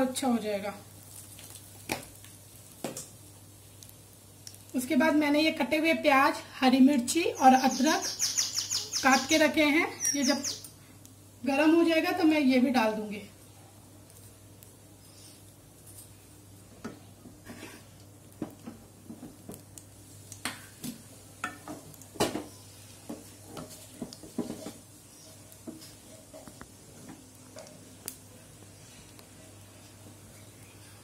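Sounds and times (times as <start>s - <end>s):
seeds crackling in hot oil: 0.0s - 31.0s.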